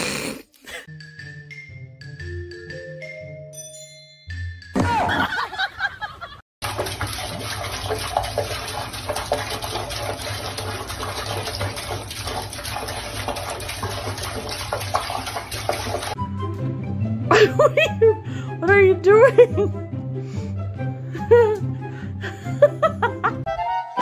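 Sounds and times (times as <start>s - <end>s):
water running from a faucet: 6.6s - 16.2s.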